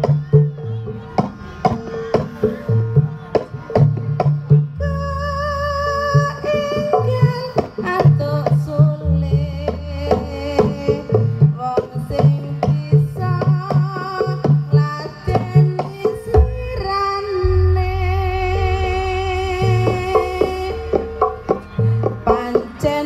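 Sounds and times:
struck percussion: 0.0s - 23.0s
wavering melody line: 15.4s - 23.0s
deep low notes: 16.4s - 22.8s.

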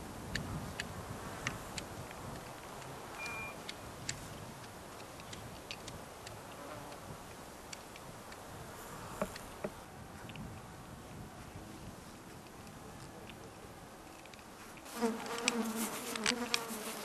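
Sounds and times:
faint ticks and clicks: 0.3s - 10.7s, 12.3s - 17.0s
insects buzzing in grass: 14.8s - 17.0s.

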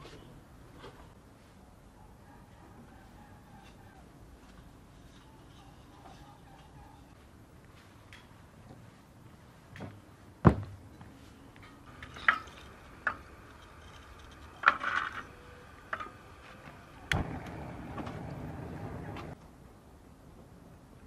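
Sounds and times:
charcoal clinking on metal grate: 11.6s - 16.2s.

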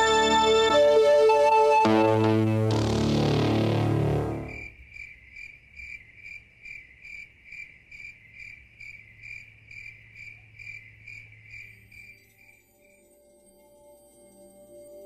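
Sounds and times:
cricket chirping: 4.5s - 15.0s.

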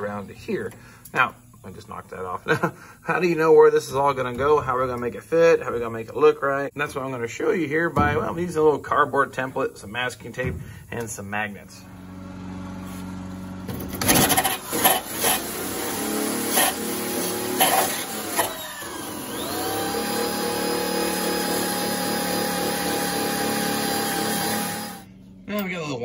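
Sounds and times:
wire brush grinder scraping rust: 12.7s - 25.1s.

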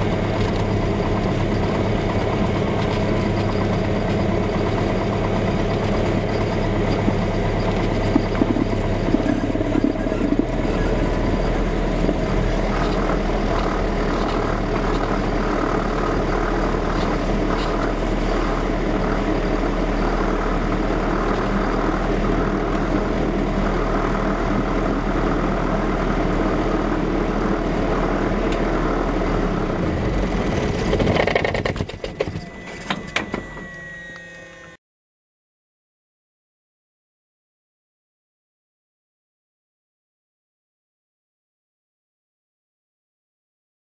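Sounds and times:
thin high whine: 32.0s - 34.8s.

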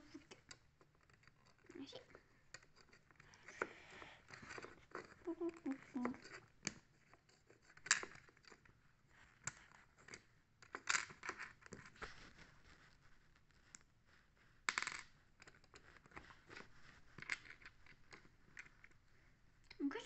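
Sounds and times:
plastic bricks clicking and scraping: 0.0s - 8.7s, 9.3s - 12.2s, 14.7s - 19.0s.

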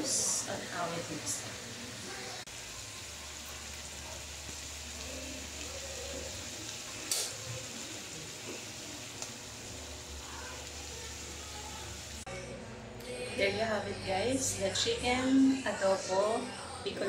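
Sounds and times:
oil sizzling in a frying pan: 0.0s - 12.3s.

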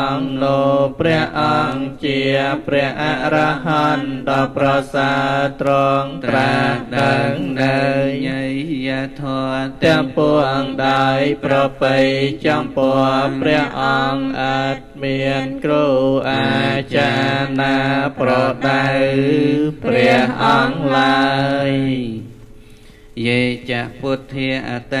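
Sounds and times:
person chanting into a microphone: 0.0s - 22.3s, 23.2s - 25.0s.

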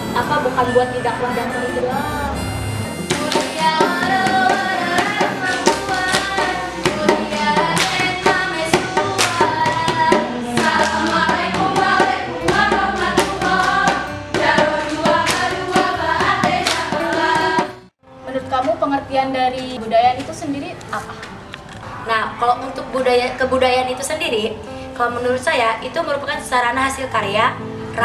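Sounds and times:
hand drum beating: 3.1s - 17.7s
hand claps and body slaps: 3.2s - 3.6s, 5.5s - 6.5s, 7.7s - 8.2s, 9.2s - 9.5s, 14.9s - 15.6s, 16.6s - 17.0s
girls chanting in unison: 3.2s - 17.7s.

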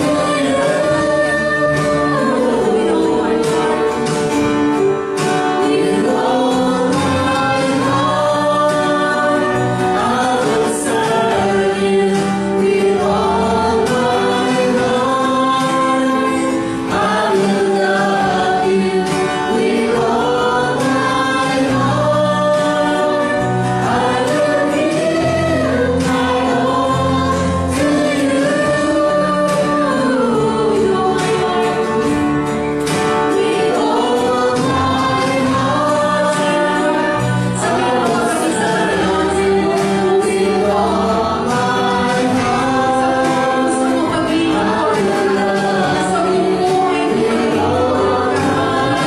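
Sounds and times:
group singing worship song: 0.0s - 49.0s
instrumental backing: 0.0s - 49.0s.

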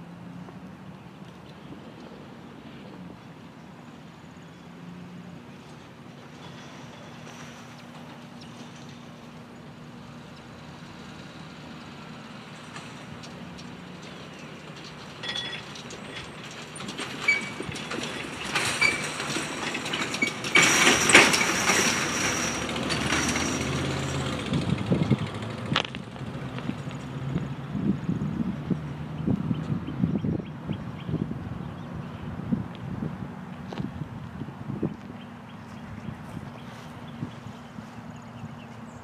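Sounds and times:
pickup truck driving past: 4.1s - 34.2s.

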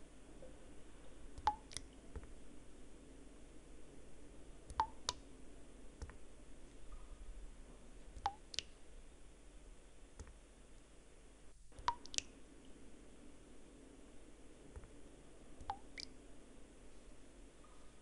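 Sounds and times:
water drops plinking into water: 1.4s - 1.9s, 4.7s - 5.2s, 8.2s - 8.7s, 11.8s - 12.3s, 15.6s - 16.1s.

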